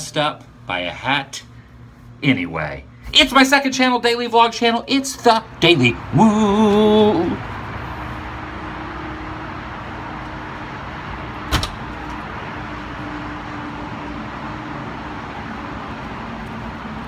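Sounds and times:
door banging shut: 0:11.5 - 0:12.2.

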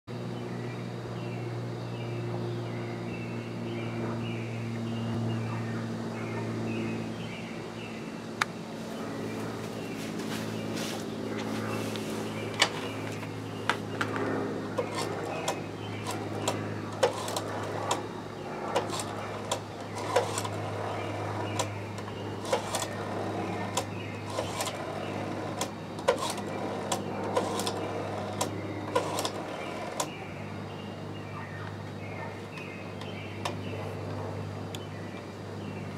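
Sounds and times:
steady low hum: 0:00.1 - 0:35.9
rotary dial whirring back: 0:12.3 - 0:30.2.

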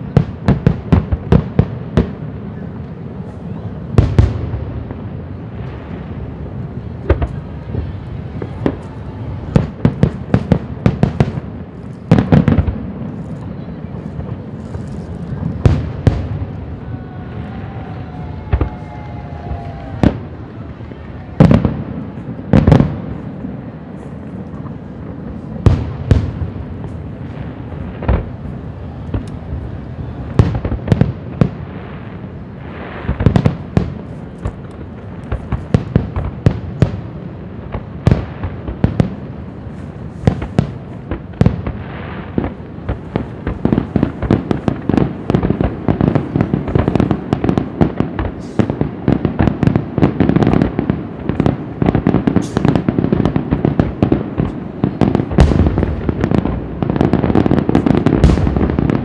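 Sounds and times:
firework shells bursting: 0:51.4 - 0:54.6.

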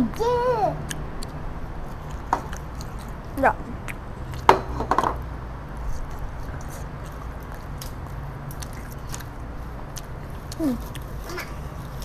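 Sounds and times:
children biting and chewing: 0:00.7 - 0:04.5, 0:05.7 - 0:12.0.

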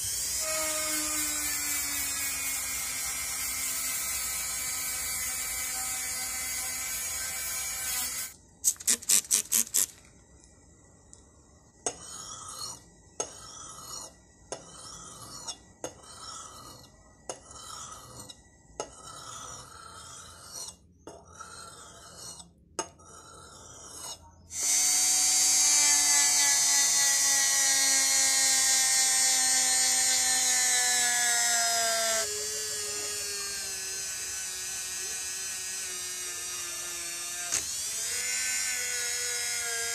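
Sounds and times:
rotary tool grinding metal: 0:00.0 - 0:10.1, 0:11.8 - 0:39.9
axe scraping on sharpening stone: 0:11.9 - 0:24.4.

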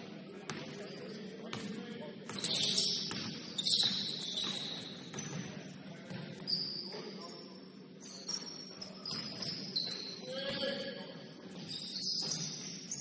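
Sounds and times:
shoes squeaking on gym floor: 0:02.3 - 0:10.9, 0:11.5 - 0:13.0.

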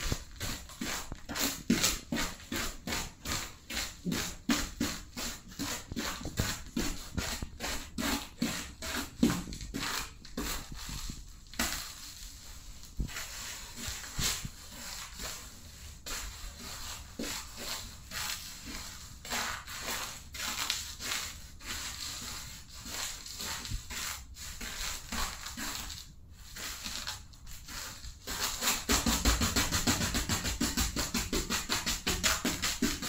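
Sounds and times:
music with drums: 0:28.8 - 0:33.0.

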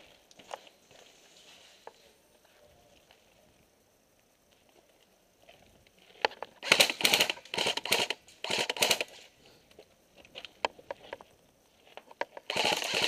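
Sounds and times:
airsoft guns firing: 0:06.6 - 0:09.1, 0:12.5 - 0:13.0.

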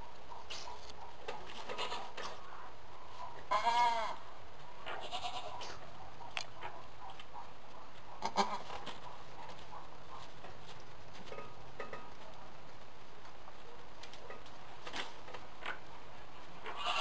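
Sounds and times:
goat bleating: 0:03.5 - 0:04.2, 0:04.9 - 0:05.6, 0:08.2 - 0:08.7, 0:16.6 - 0:17.0
faint rustles and clicks: 0:04.6 - 0:17.0.

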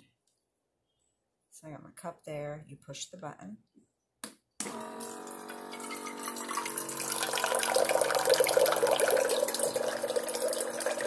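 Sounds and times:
electric pump whirring: 0:04.6 - 0:11.0
water pouring into cup: 0:05.7 - 0:11.0.

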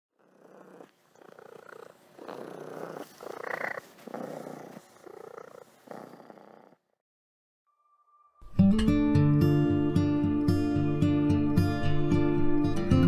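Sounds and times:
cat purring: 0:00.2 - 0:07.0.

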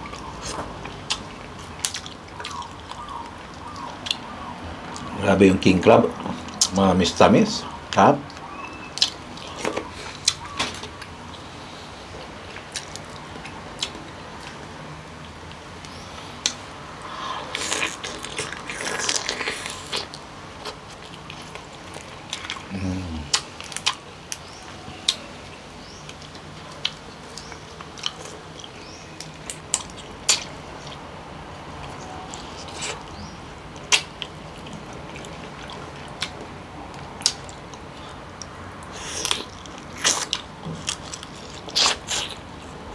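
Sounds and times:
wet chewing and biting: 0:00.0 - 0:04.4, 0:31.8 - 0:42.6.

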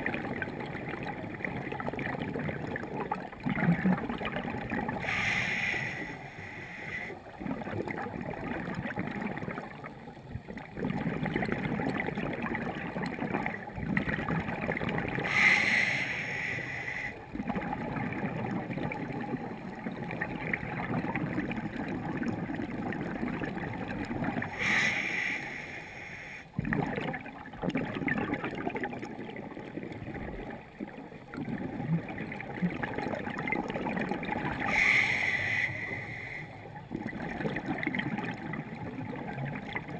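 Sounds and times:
scuba exhaust bubbles: 0:00.0 - 0:39.9.

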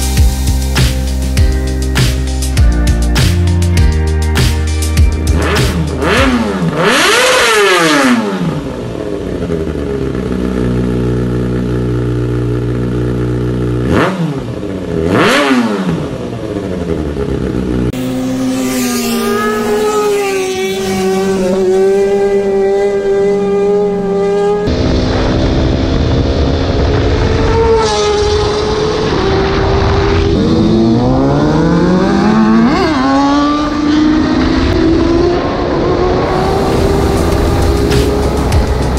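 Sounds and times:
motorcycle engine revving: 0:04.8 - 0:38.9.

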